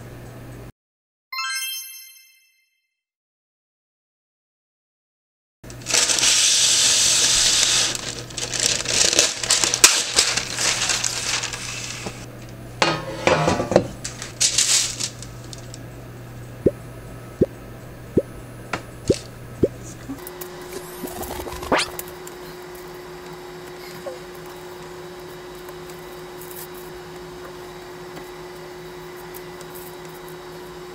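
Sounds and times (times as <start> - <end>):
baking paper rustling: 5.7 - 12.3, 14.0 - 15.8
paper crackling on metal tray: 5.7 - 12.3, 14.0 - 15.8.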